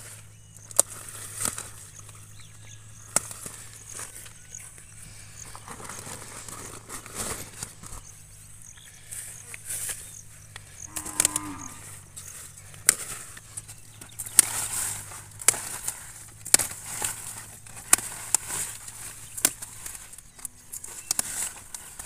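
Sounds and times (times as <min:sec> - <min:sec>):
rustling foliage: 0:00.0 - 0:22.0
leaf stems snapping: 0:00.6 - 0:02.2, 0:03.0 - 0:04.7, 0:09.5 - 0:22.0.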